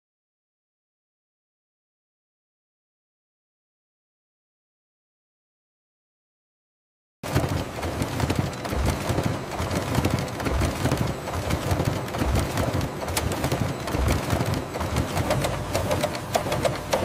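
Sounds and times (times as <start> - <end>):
printing press clattering: 7.3 - 17.0.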